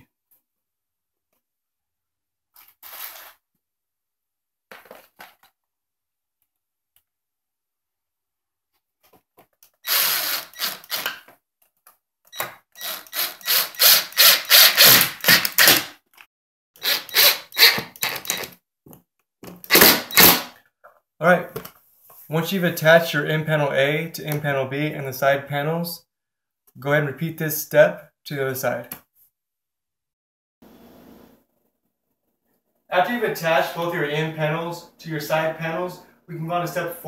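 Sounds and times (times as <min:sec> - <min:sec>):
cordless driver driving screws: 0:09.8 - 0:11.2, 0:12.4 - 0:15.9, 0:16.8 - 0:18.6, 0:19.7 - 0:20.5.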